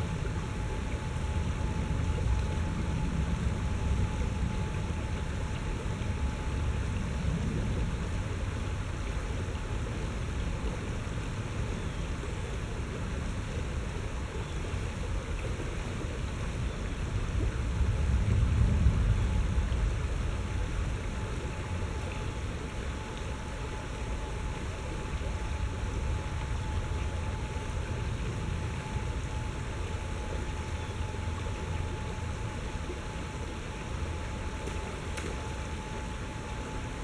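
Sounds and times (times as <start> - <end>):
low rumble: 17.2 - 22.9.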